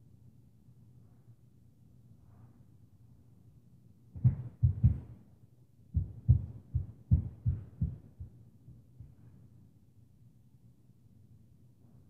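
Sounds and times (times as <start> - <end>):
muffled footfalls through ceiling: 4.2 - 5.2, 6.0 - 9.5.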